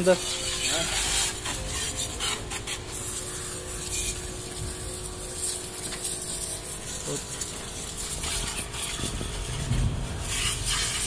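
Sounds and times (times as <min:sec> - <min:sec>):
faint pump hum: 0:00.0 - 0:11.0
water spray hissing and splashing: 0:00.0 - 0:11.0.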